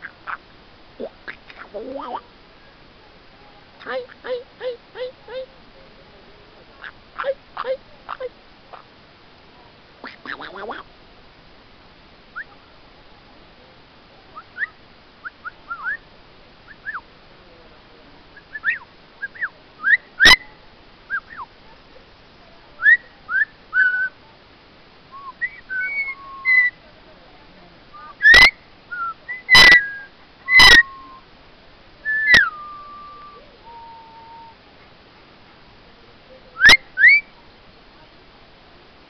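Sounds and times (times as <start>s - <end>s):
parrot squawking: 6.8s - 8.8s, 10.0s - 10.8s, 28.0s - 28.5s, 29.5s - 29.9s, 30.5s - 31.0s
parrot whistling: 25.4s - 26.7s, 28.0s - 31.2s, 32.1s - 34.5s.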